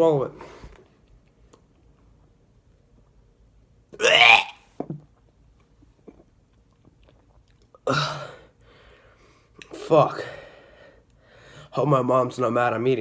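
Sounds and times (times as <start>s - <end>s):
man chewing: 6.5s - 7.8s.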